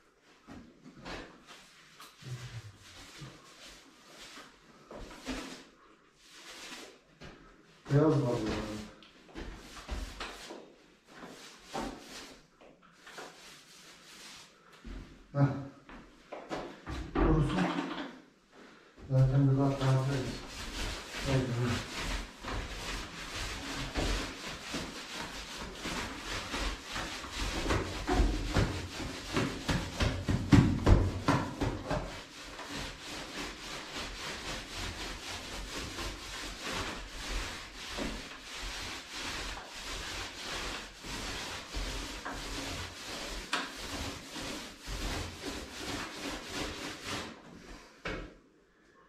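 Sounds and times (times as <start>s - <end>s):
paint roller rasping on wall: 0.5s - 18.2s, 19.0s - 48.0s.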